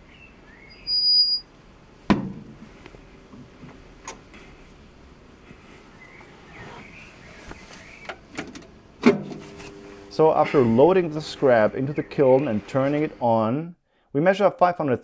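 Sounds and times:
faint birdsong: 0.0 - 1.4, 5.4 - 8.3, 10.5 - 14.0
high electronic beep: 0.8 - 1.4.

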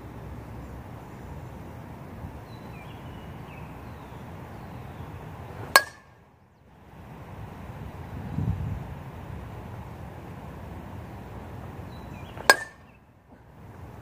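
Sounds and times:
metal bat hitting ball: 5.7 - 6.1, 12.4 - 12.9.

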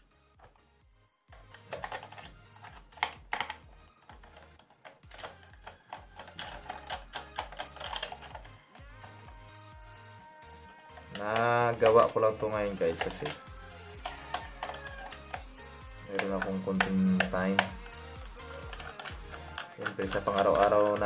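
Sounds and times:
background music: 0.0 - 21.0
screwdriver clicking on plastic case: 1.4 - 9.4, 12.8 - 15.5, 16.1 - 21.0.

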